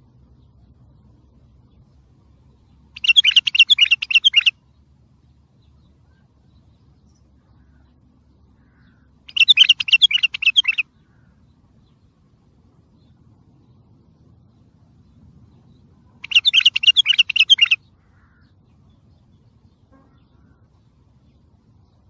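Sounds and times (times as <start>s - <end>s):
bulbul singing rapid clear notes: 3.0s - 4.6s, 9.3s - 10.9s, 16.2s - 17.8s.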